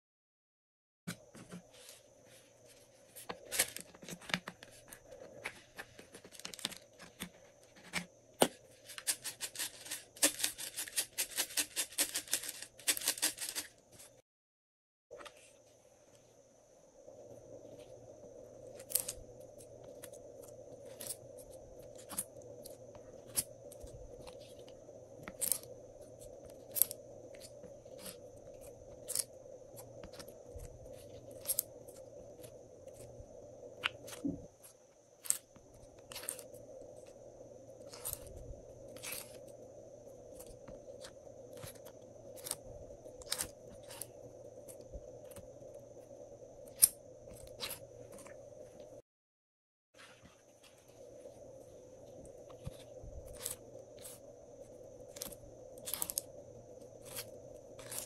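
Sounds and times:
steady low hum: 15.2s - 49.0s, 50.0s - 58.0s.

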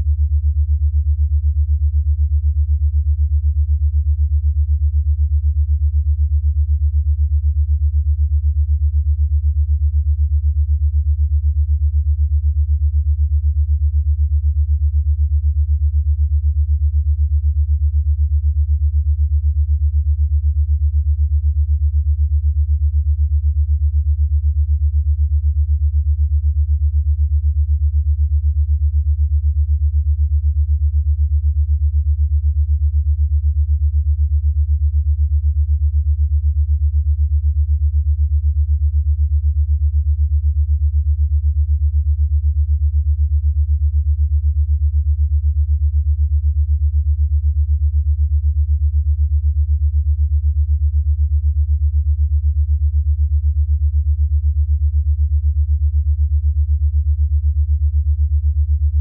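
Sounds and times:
pulsing low electronic tone: 49.1s - 59.0s.

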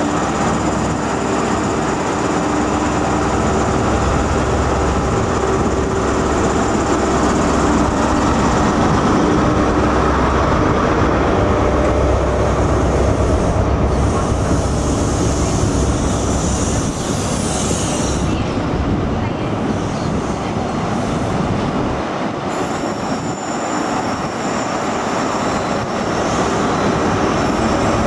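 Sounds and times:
coaches rolling on rails: 0.0s - 28.0s
diesel train engine: 0.0s - 28.0s.

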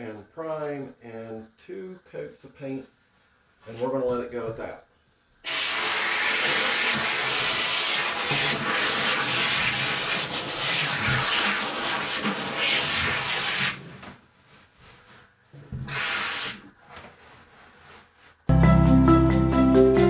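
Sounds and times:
steam cleaner hissing: 5.4s - 13.9s, 15.8s - 16.6s.

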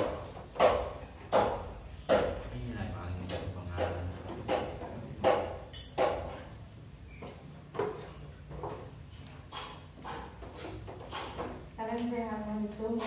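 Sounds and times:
spoons clinking on plates: 5.5s - 11.6s.

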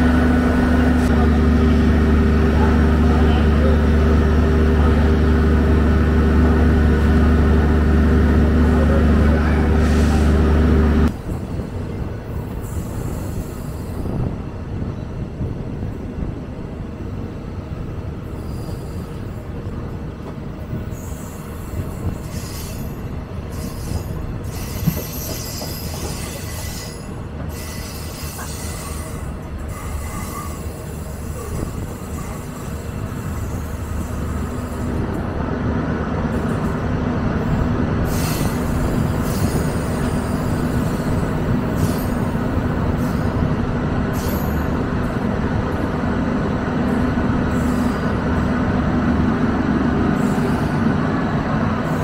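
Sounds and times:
diesel engine drone: 0.0s - 11.1s
train rumbling on rails: 0.0s - 52.0s.

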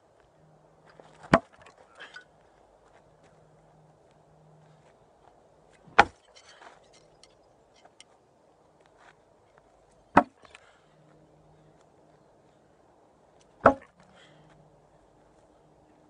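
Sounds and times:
blades striking wooden log: 5.9s - 6.3s, 10.1s - 10.4s, 13.6s - 13.9s
small wooden clicks and rattles: 6.1s - 8.0s.

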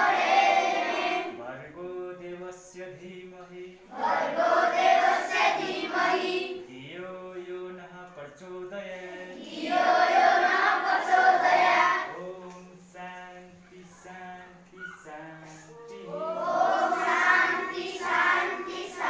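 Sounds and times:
children chanting a prayer: 0.0s - 1.4s, 3.9s - 6.8s, 9.1s - 12.5s, 13.6s - 19.0s.

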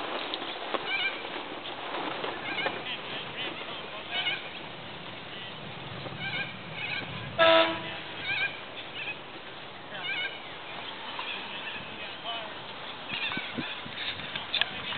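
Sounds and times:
birds calling: 0.4s - 14.8s
boat horn blast: 7.2s - 8.6s.

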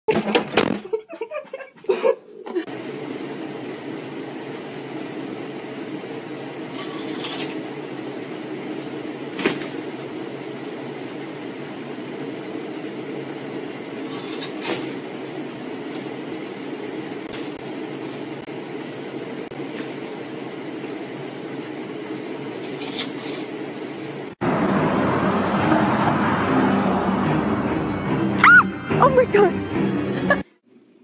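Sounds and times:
ventilation hum: 0.4s - 24.4s.

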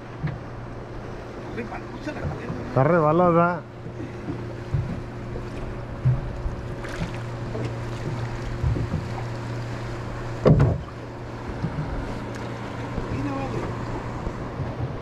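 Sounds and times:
outboard motor running: 0.0s - 15.0s
loud thump: 10.4s - 10.9s.

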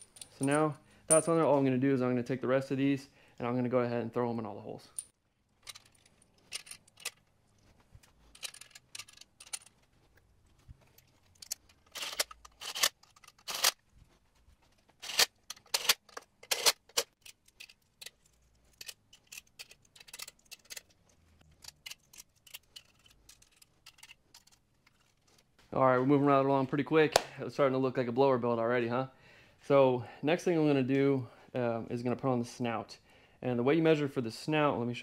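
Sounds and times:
metal studs clicking and clinking: 0.0s - 1.6s, 4.9s - 7.4s, 8.0s - 9.9s, 10.9s - 13.8s, 15.0s - 25.4s.

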